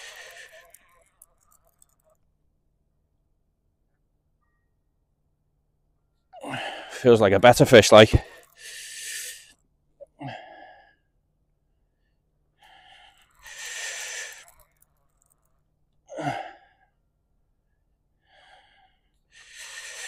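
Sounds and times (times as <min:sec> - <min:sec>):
man breathing hard: 0:00.0 - 0:02.0, 0:06.4 - 0:07.1, 0:08.1 - 0:11.1, 0:12.1 - 0:15.4, 0:16.1 - 0:17.0, 0:18.2 - 0:20.0.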